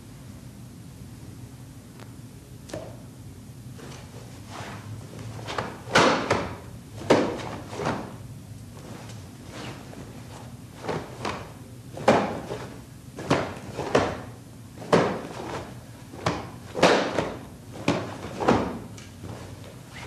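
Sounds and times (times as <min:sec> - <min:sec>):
bare feet on mat: 0:03.7 - 0:20.0
cloth uniform snapping: 0:14.8 - 0:20.0.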